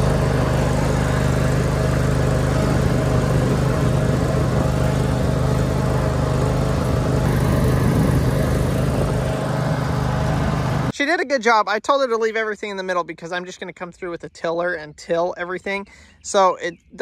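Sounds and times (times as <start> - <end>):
fence drag scraping over dirt: 0.0 - 10.9
riding mower engine running: 0.0 - 10.9.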